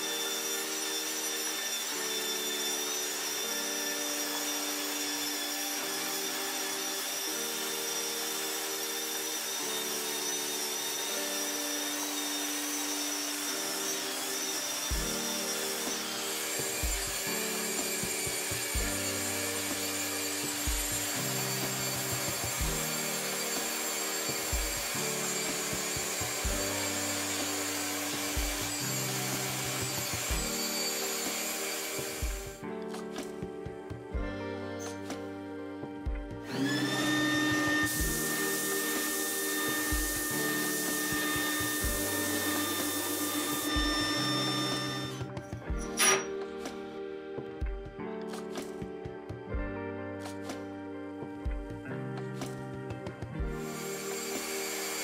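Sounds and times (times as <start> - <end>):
electric drill whining: 0.0 - 33.4, 36.0 - 46.5, 53.4 - 55.0
background music with deep beat: 14.9 - 15.3, 16.6 - 54.5.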